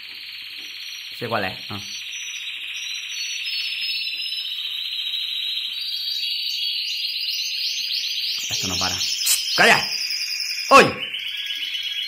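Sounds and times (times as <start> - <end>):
canary singing metallic trill: 0.3 - 12.0.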